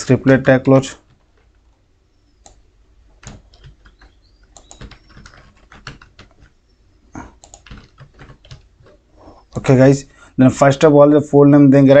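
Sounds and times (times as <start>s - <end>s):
computer keyboard typing: 2.4s - 2.6s, 3.2s - 6.6s, 7.2s - 9.6s.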